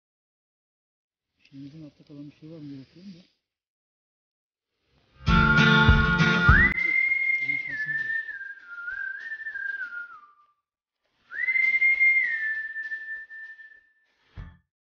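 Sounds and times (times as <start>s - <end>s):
whistled melody: 5.2s - 10.6s, 11.3s - 14.5s.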